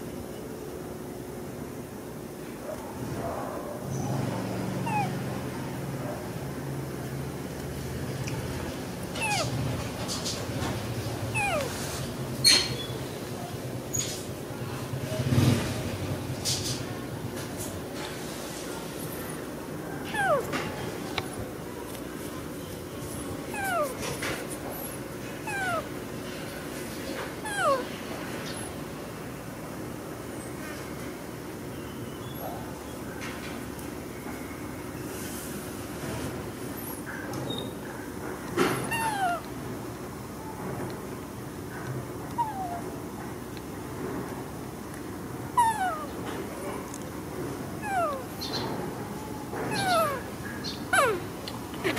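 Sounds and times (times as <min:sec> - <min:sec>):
high animal call sliding downward: 0:04.8 - 0:05.2, 0:09.2 - 0:09.6, 0:11.4 - 0:12.0, 0:20.1 - 0:20.6, 0:23.6 - 0:24.0, 0:25.5 - 0:25.9, 0:27.5 - 0:27.9, 0:38.9 - 0:39.5, 0:45.6 - 0:46.2, 0:47.8 - 0:48.3, 0:49.7 - 0:50.3, 0:50.9 - 0:51.9.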